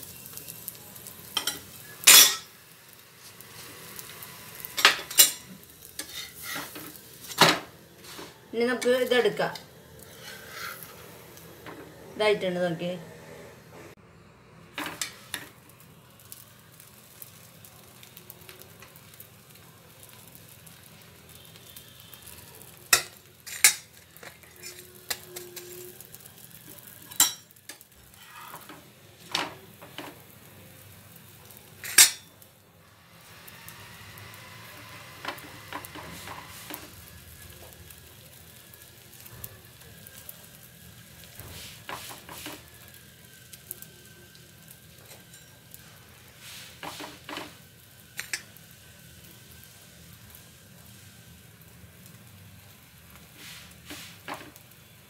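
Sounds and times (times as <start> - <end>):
dough sizzling on pan: 0.0 - 55.0
utensils clinking against pan: 1.4 - 2.5, 4.8 - 7.6, 22.9 - 25.9, 27.0 - 30.2, 31.8 - 32.3, 45.0 - 45.7.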